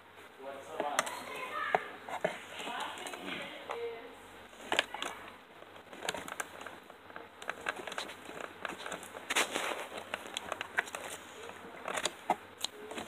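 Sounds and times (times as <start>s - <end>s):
plastic packaging crinkling: 7.4s - 13.0s.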